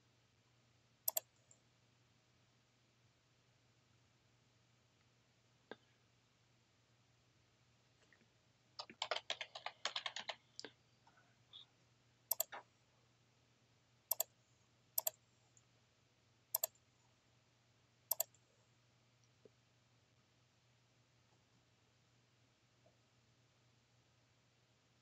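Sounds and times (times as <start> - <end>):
keyboard typing: 1.1 - 1.3, 8.8 - 10.7, 12.3 - 12.6, 14.1 - 14.3, 15.0 - 15.2, 16.6 - 16.8, 18.1 - 18.4
mouse clicks: 1.1 - 1.6, 12.3 - 12.6, 14.1 - 14.3, 15.0 - 15.2, 16.6 - 16.8, 18.1 - 18.4.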